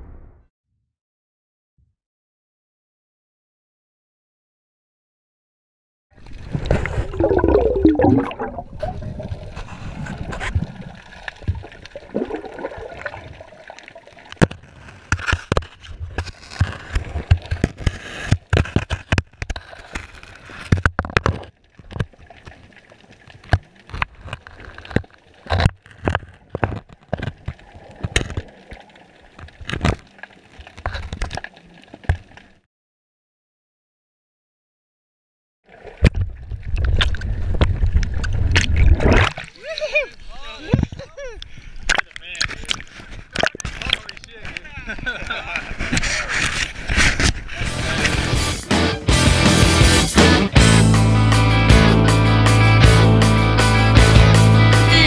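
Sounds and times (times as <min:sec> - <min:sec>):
gurgling rush of water: 0:06.4 - 0:14.6.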